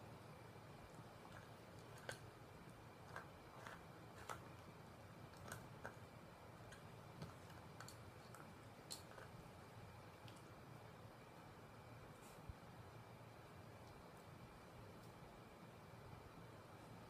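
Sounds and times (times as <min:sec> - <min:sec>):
dog teeth cracking on bone: 0:01.3 - 0:02.3, 0:05.3 - 0:06.0.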